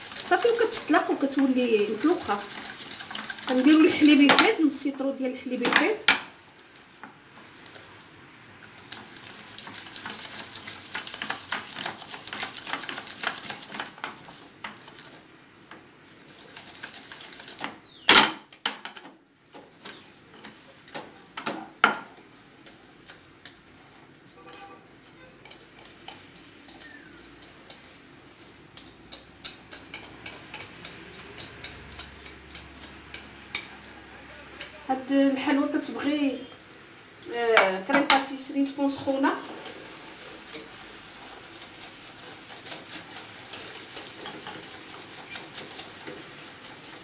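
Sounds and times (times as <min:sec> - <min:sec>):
whisk scraping glass dish: 0:00.0 - 0:04.3, 0:08.8 - 0:15.2, 0:16.2 - 0:18.0, 0:23.1 - 0:28.2, 0:28.8 - 0:34.0, 0:38.0 - 0:47.0.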